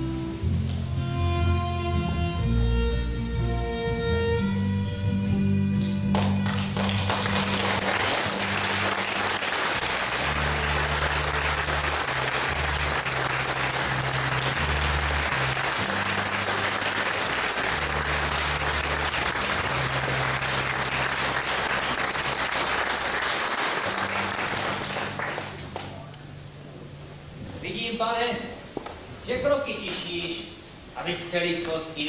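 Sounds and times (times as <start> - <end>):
low music: 0.0 - 28.7
audience applauding: 6.1 - 26.1.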